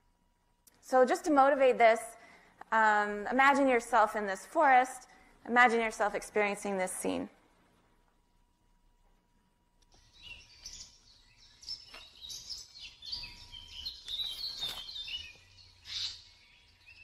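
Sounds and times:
birds chirping and trilling: 9.9 - 17.0.

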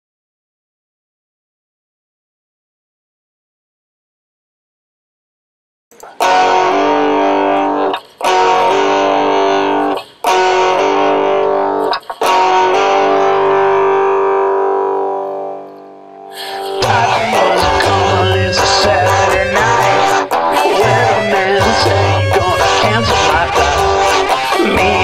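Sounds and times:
guitar chords strummed: 5.9 - 25.0.

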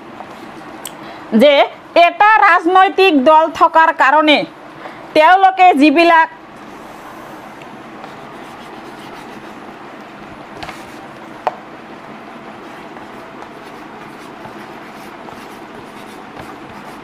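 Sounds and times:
chalk writing on blackboard: 8.0 - 9.6, 12.6 - 17.0
chalk tapping on board: 12.9 - 17.0.

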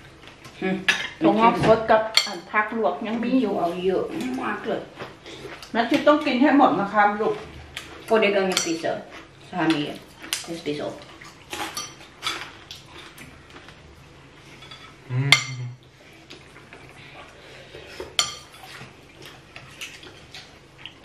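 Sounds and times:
cutlery clinking against ceramic bowls: 8.5 - 8.9, 11.6 - 12.5, 14.6 - 15.8, 18.2 - 18.7.

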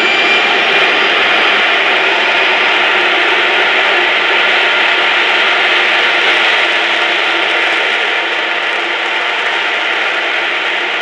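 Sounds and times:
jet engine roaring: 0.0 - 11.0.

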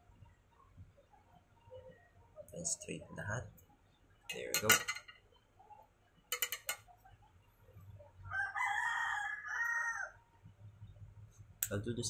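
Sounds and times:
rooster crowing: 8.3 - 10.2.

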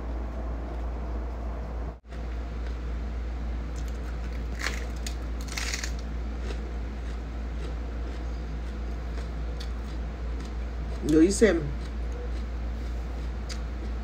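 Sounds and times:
steady low hum: 0.0 - 14.0
lettuce crunching: 3.7 - 14.0.

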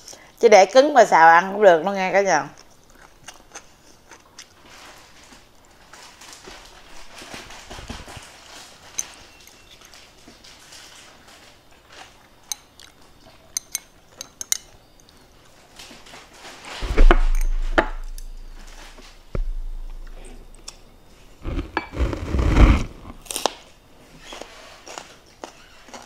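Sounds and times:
chewing: 2.6 - 6.0, 9.0 - 15.6
loud knock: 16.8 - 20.6.

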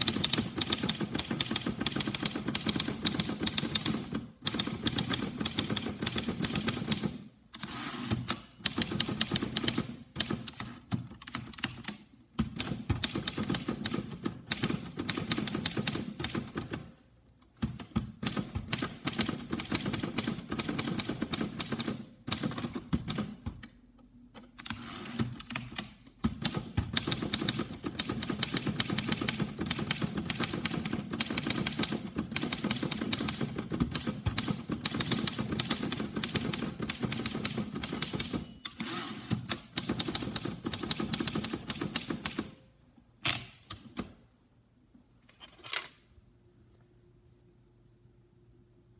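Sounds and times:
typewriter typing: 0.0 - 16.9, 24.6 - 42.6.

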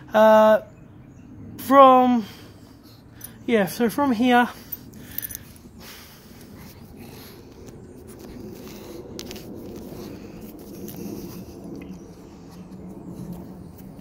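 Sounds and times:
scratchy rustles and clicks: 6.4 - 14.0.

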